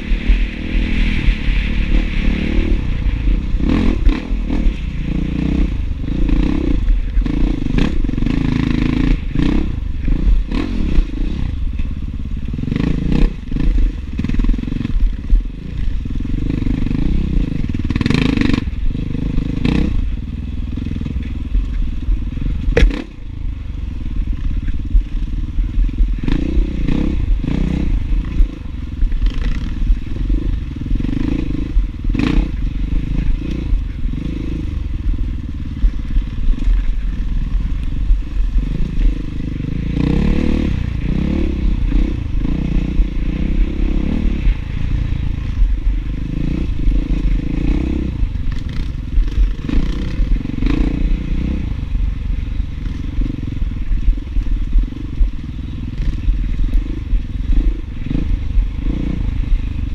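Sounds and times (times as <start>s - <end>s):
dirt bike engine revving: 0.0s - 59.9s
knocks and clatter from bike: 20.9s - 23.3s
sharp crack: 22.7s - 23.2s.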